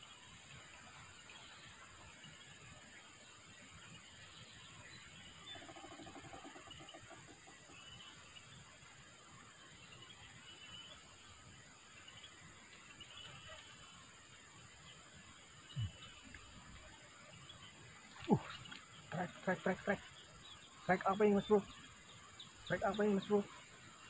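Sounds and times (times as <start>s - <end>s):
bird chirps: 4.1s - 8.6s, 14.9s - 24.0s.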